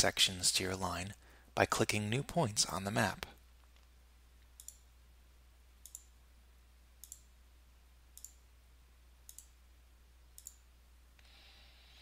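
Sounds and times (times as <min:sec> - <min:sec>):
low steady hum: 0:00.0 - 0:12.0
computer mouse clicks: 0:03.6 - 0:04.8, 0:05.8 - 0:06.1, 0:07.0 - 0:07.3, 0:08.2 - 0:08.4, 0:09.2 - 0:09.6, 0:10.4 - 0:10.6.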